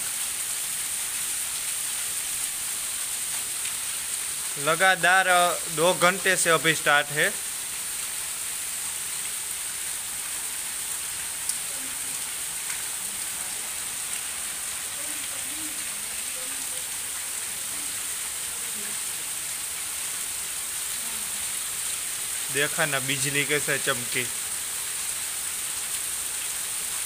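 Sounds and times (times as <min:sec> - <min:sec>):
heavy rain falling: 0:00.0 - 0:27.0.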